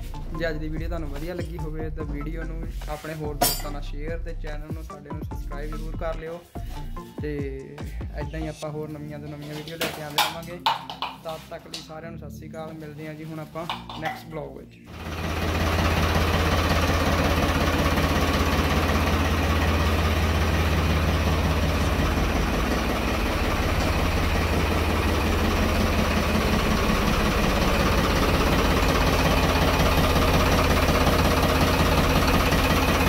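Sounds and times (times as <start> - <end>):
diesel tractor engine idling: 14.9 - 33.0.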